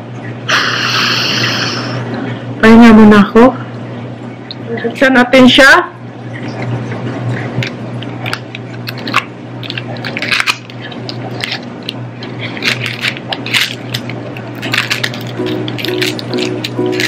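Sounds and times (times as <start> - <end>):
low hum: 6.0 - 17.0
plastic packaging crinkling: 7.3 - 17.0.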